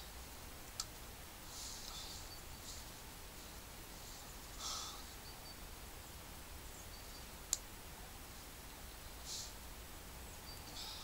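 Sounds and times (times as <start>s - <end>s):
faint background hiss: 0.0s - 11.0s.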